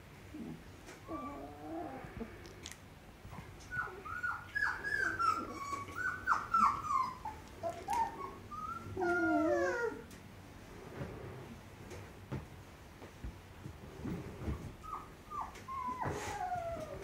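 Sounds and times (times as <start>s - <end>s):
puppy whining: 0.3s - 2.3s, 3.3s - 10.2s, 14.4s - 17.0s
puppy yowling: 3.7s - 10.0s.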